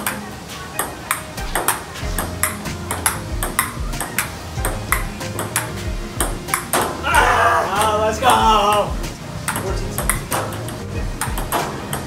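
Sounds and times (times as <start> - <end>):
ping-pong ball hits: 0.0 - 12.0.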